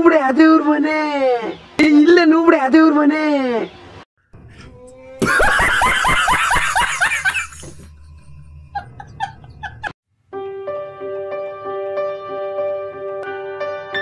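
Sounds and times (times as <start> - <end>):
man laughing hard: 5.2 - 8.0, 8.7 - 9.9
soft piano music: 10.3 - 14.0.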